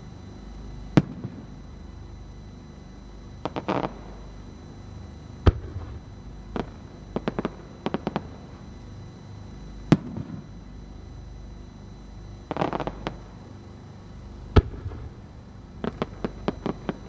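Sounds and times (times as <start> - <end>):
small firework pops: 15.8 - 17.0.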